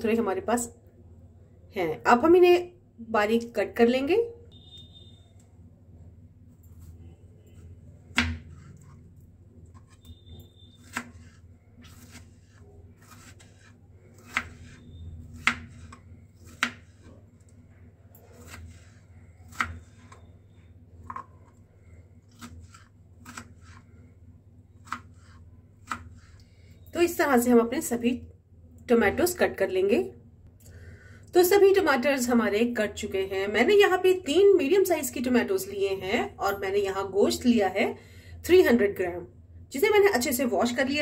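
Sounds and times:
knife chopping on plastic board: 8.1 - 8.7, 10.8 - 17.1, 18.4 - 19.9, 22.3 - 23.8, 24.8 - 26.3.

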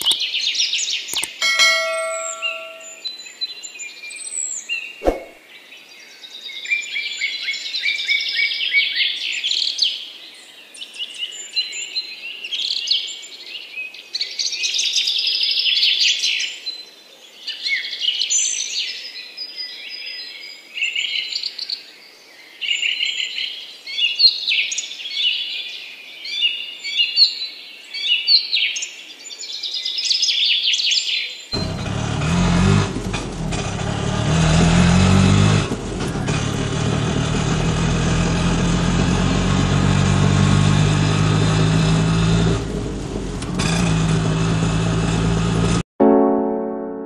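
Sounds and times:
sharp click: 1.1 - 3.0.

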